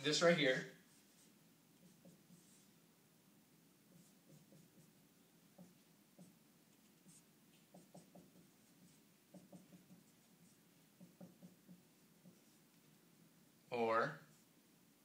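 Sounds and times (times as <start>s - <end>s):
marker squeaking on whiteboard: 0.7s - 2.7s, 3.9s - 12.8s.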